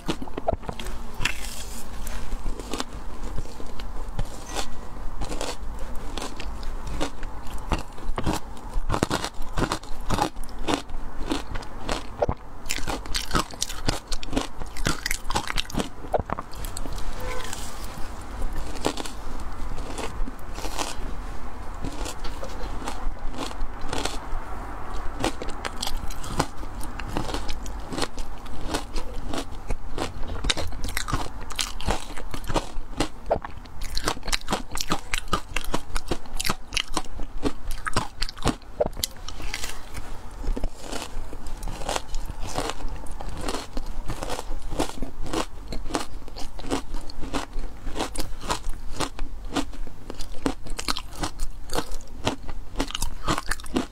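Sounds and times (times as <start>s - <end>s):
crunching and chewing ice: 0.0s - 53.9s
low steady hum: 0.0s - 53.9s.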